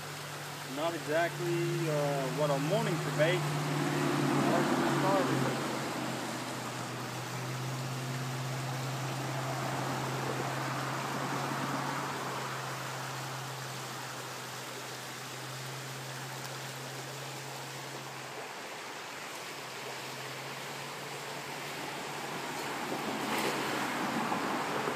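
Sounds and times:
creek water rushing: 0.0 - 24.9.

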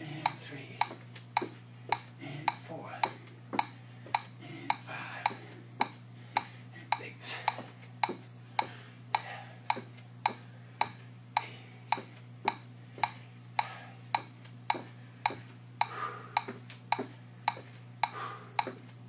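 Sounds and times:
low steady hum: 0.0 - 19.0
electronic metronome clicking: 0.2 - 4.8, 9.7 - 18.8.

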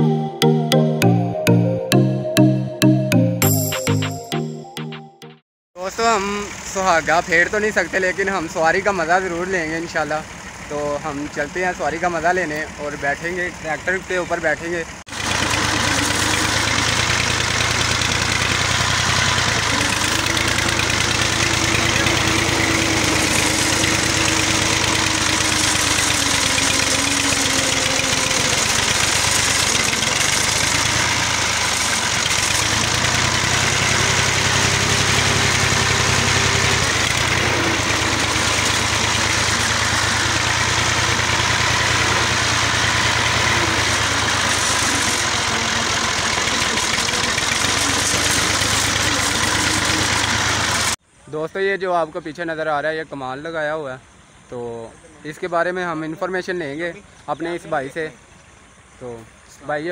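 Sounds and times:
tractor diesel engine chugging: 5.8 - 51.0.

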